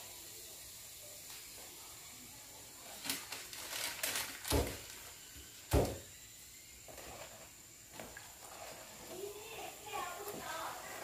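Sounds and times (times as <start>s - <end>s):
bubbling caramelized sugar: 0.0s - 11.0s
faint steady hiss: 0.0s - 11.0s.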